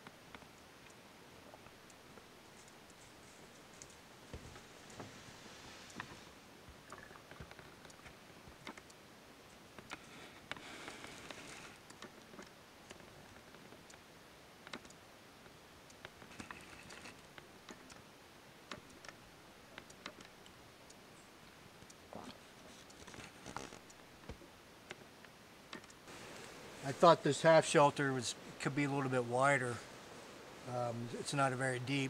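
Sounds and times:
faint small clicks: 0:00.0 - 0:05.0, 0:05.8 - 0:18.1, 0:18.7 - 0:26.6
soft rustles: 0:02.5 - 0:06.4, 0:22.2 - 0:24.5.

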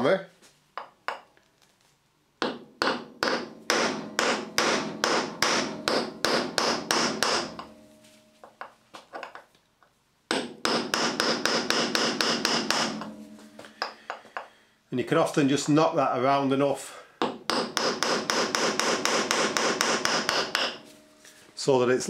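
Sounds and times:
hammer striking chisel on metal: 0:00.8 - 0:01.3, 0:02.4 - 0:07.8, 0:10.3 - 0:14.6, 0:17.2 - 0:20.9.

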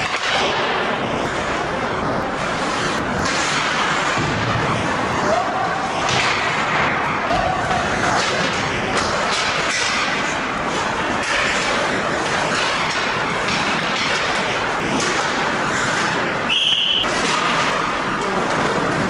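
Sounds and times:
skates scraping on ice: 0:00.0 - 0:19.0
referee's whistle blast: 0:16.5 - 0:17.1.

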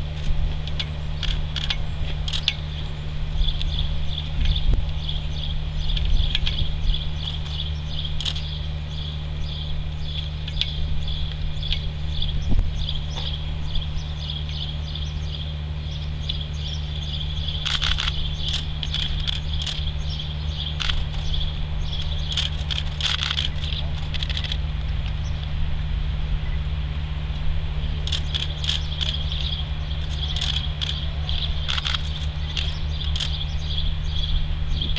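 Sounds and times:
low steady hum: 0:00.0 - 0:34.9
sharp clicks: 0:00.2 - 0:02.6, 0:07.2 - 0:08.6, 0:10.1 - 0:11.8, 0:17.5 - 0:25.5, 0:28.0 - 0:33.4
insects chirping: 0:00.8 - 0:24.6, 0:27.7 - 0:34.9.

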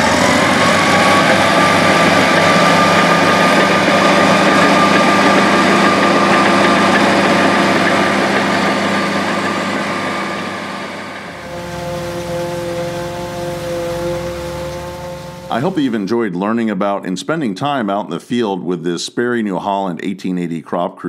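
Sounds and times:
bulldozer diesel engine under load: 0:00.0 - 0:07.0, 0:11.2 - 0:16.0
steady mechanical whine: 0:00.0 - 0:16.1.

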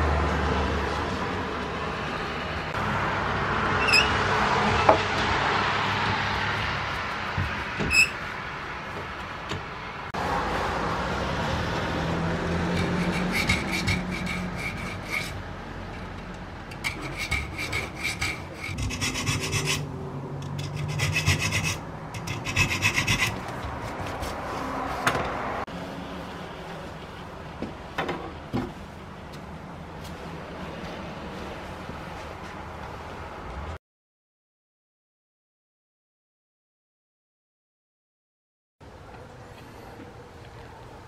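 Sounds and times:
file scraping saw teeth: 0:12.6 - 0:15.4, 0:16.7 - 0:24.5.

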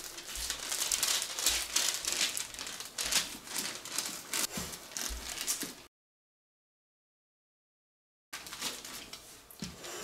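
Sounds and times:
paper crinkling and rustling: 0:00.0 - 0:05.9, 0:08.4 - 0:09.8.

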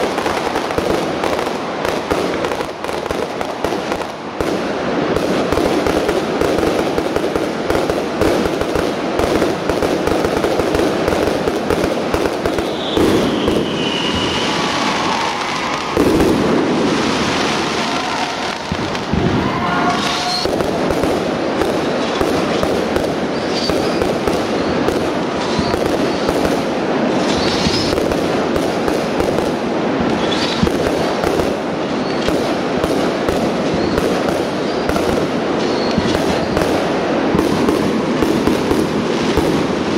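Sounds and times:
fireworks bangs and crackling: 0:00.0 - 0:39.9
firework whistles: 0:12.2 - 0:28.4, 0:30.1 - 0:39.5.

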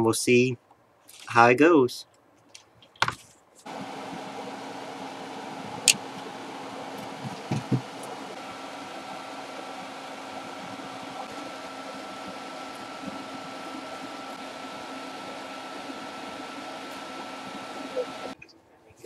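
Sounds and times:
electric fan humming: 0:03.6 - 0:18.6
faint high whine: 0:03.7 - 0:18.6
tools knocking on bench: 0:07.2 - 0:07.9.

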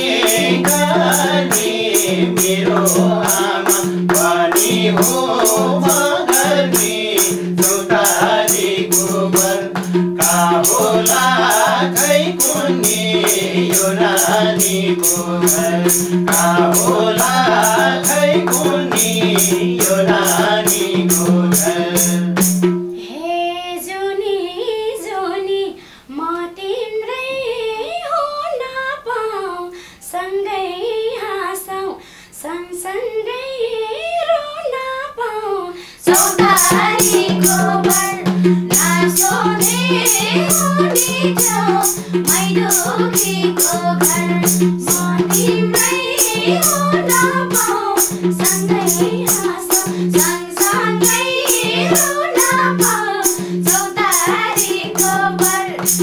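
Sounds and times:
jingling percussion: 0:00.0 - 0:22.9, 0:36.0 - 0:56.0
hand drum beat: 0:00.0 - 0:23.0, 0:36.1 - 0:56.0
women singing: 0:00.0 - 0:56.0.

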